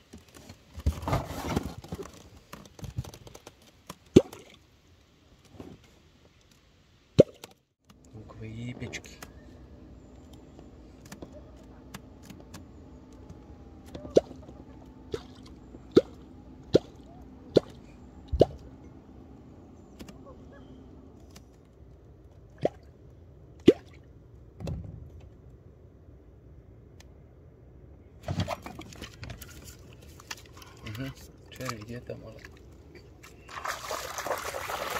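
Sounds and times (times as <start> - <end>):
faint hum: 7.9 - 34.9.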